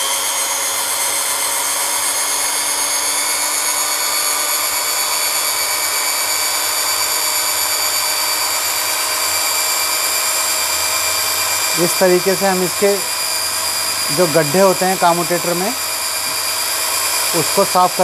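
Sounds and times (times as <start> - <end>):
electric drill whining: 0.0 - 18.0
file scraping commutator: 4.2 - 18.0.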